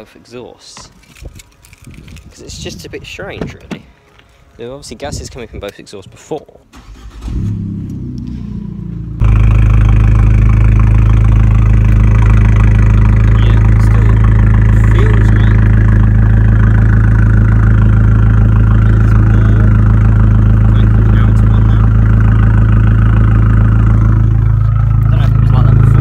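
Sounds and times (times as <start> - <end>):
car engine idling with low drone: 7.1 - 26.0.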